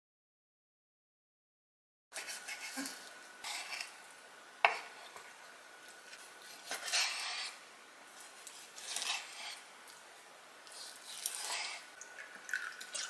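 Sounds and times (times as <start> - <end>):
knife cutting on wooden board: 3.4 - 3.9, 6.5 - 7.6, 8.4 - 9.6, 10.7 - 11.9.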